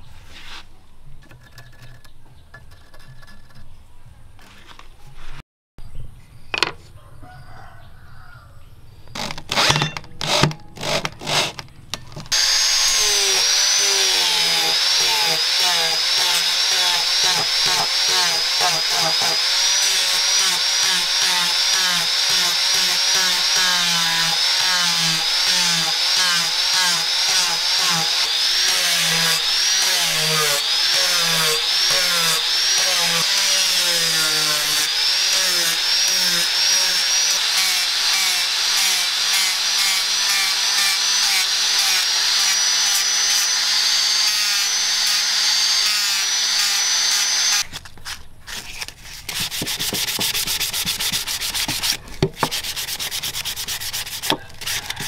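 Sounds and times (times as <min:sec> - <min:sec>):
sandpaper rubbing on wood: 0:00.0 - 0:00.7, 0:48.5 - 0:55.0
angle grinder whining: 0:09.2 - 0:47.8, 0:53.2 - 0:55.0.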